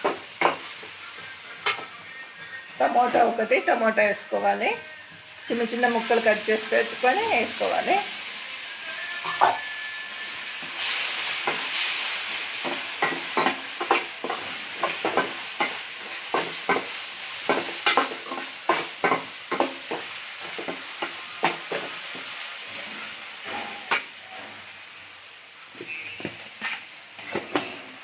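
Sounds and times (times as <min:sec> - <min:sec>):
oil sizzling: 0:00.0 - 0:28.0
metal spatula scraping a pan: 0:20.5 - 0:24.7, 0:25.8 - 0:28.0.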